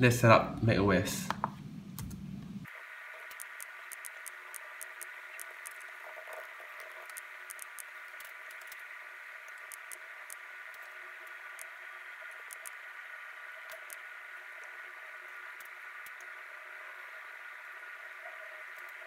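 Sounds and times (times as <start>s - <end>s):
faint static hiss: 0.0s - 19.0s
thin steady tones: 2.6s - 19.0s
tiny sharp ticks: 3.2s - 12.8s, 13.6s - 14.8s, 15.5s - 16.4s, 18.7s - 19.0s.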